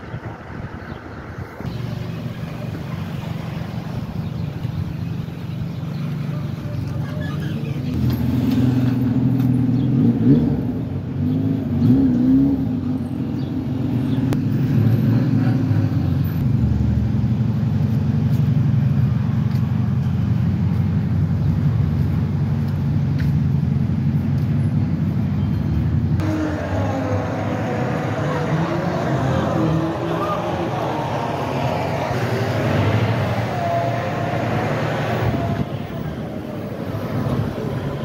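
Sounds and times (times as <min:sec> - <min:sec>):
vehicle engine running: 0:15.7 - 0:38.0
broad rushing noise: 0:26.2 - 0:38.0.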